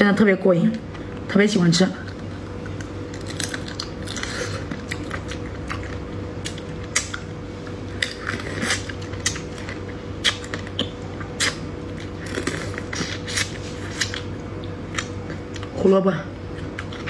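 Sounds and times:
steady low hum: 0:00.0 - 0:17.0
wet mouth sounds: 0:10.2 - 0:11.8.

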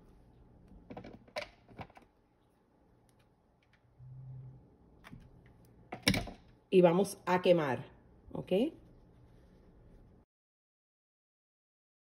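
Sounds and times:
short low hum: 0:03.9 - 0:05.3.

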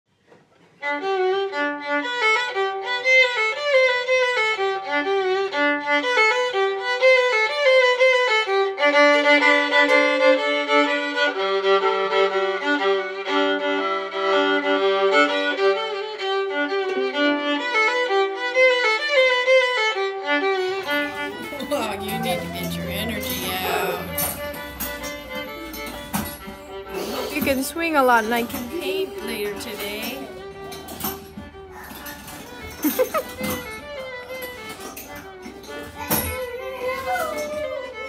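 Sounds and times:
instrumental background music: 0:00.8 - 0:38.0.

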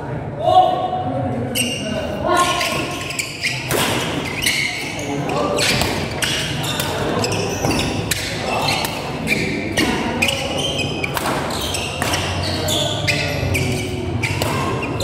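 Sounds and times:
shoe squeaks on court floor: 0:01.5 - 0:15.0
rackets hitting shuttlecock: 0:03.5 - 0:04.4, 0:05.5 - 0:10.3, 0:11.0 - 0:12.6, 0:14.2 - 0:15.0.

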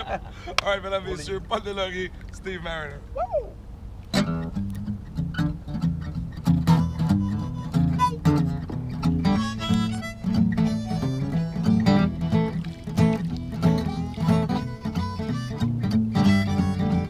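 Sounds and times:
acoustic guitar strumming: 0:04.1 - 0:17.0
harmonica bent notes: 0:06.5 - 0:17.0.

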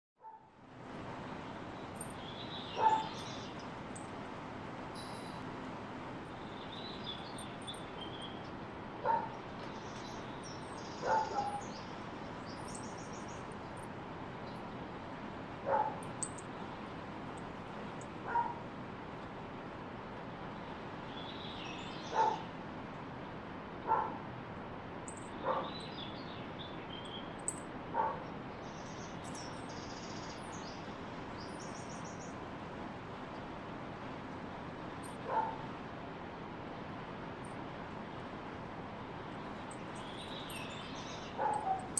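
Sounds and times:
dog yipping softly: 0:02.8 - 0:03.2, 0:11.0 - 0:11.6, 0:22.2 - 0:22.4
faint high chirps: 0:04.9 - 0:05.5.

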